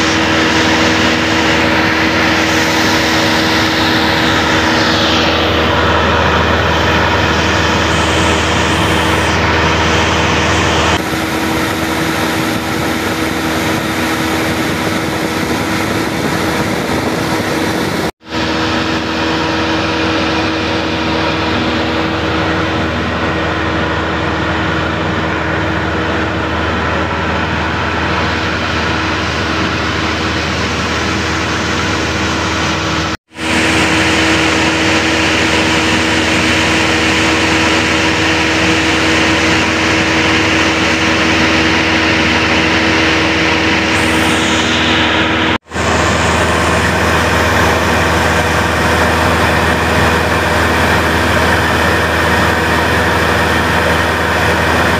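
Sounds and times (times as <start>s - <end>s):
propeller airplane engine in cabin: 0.0s - 54.9s.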